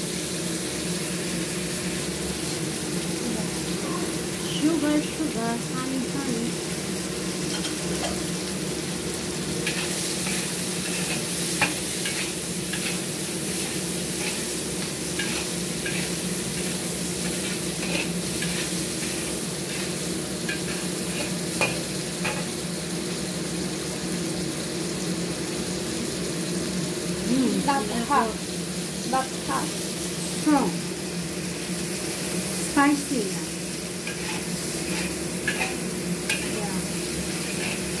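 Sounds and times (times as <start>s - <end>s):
prawns sizzling in a wok: 0.0s - 38.0s
metal spatula scraping a wok: 9.6s - 22.5s, 34.0s - 38.0s.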